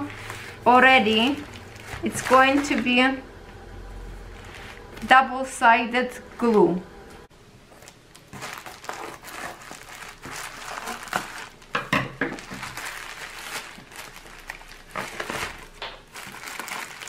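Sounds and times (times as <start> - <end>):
plastic packaging crinkling: 0.0 - 3.0, 4.3 - 5.2, 7.7 - 17.0.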